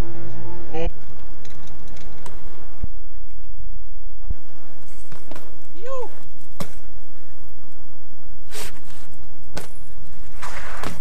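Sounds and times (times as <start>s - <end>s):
wind rumble on microphone: 0.0s - 11.0s
bike clacks: 0.9s - 3.6s, 4.3s - 7.8s, 8.6s - 11.0s.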